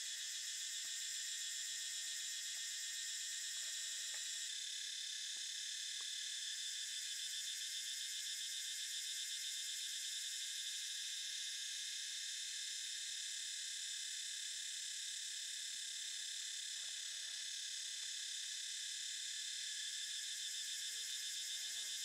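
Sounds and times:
insects trilling: 0:19.9 - 0:22.0.

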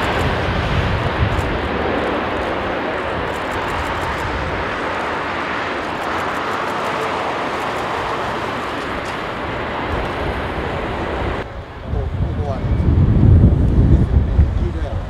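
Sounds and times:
jet engines rushing: 0:00.0 - 0:15.0.

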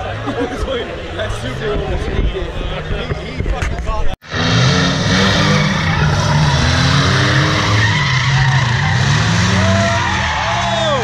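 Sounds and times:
car engine running loudly: 0:04.2 - 0:11.0.

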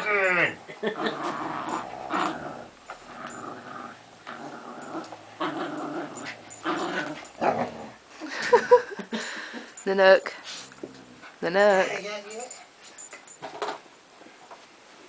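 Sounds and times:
dogs growling in play: 0:00.0 - 0:08.3, 0:10.4 - 0:11.9.

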